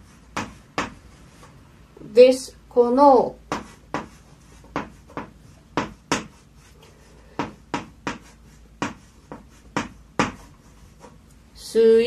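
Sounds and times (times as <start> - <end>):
chalk tapping and scraping on blackboard: 0.0 - 1.6, 3.3 - 11.2.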